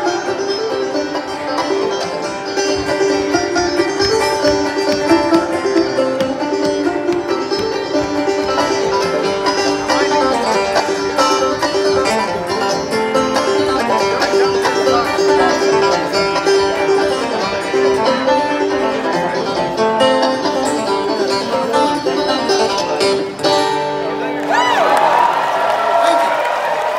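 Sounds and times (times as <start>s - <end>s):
banjo and acoustic guitar tune: 0.0s - 24.6s.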